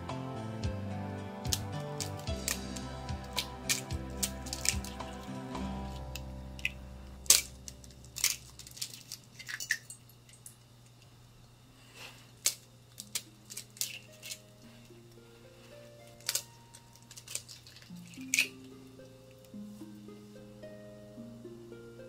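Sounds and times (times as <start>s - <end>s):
soft background music: 0.0s - 8.9s, 12.9s - 22.0s
eggshells cracking: 1.5s - 10.6s, 12.3s - 14.6s, 16.1s - 18.7s.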